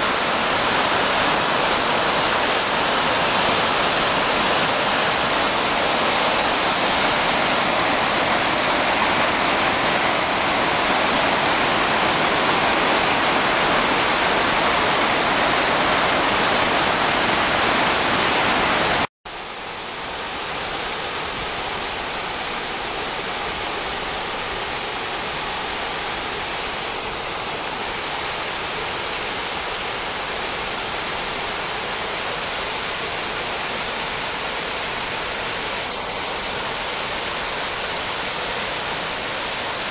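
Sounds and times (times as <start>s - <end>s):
creek water rushing over rocks: 0.0s - 39.9s.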